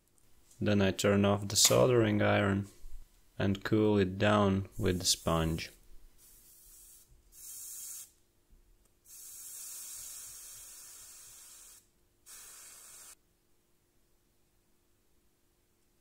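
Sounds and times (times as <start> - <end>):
wet sponge hissing on hot iron: 6.2 - 8.2, 9.1 - 13.2.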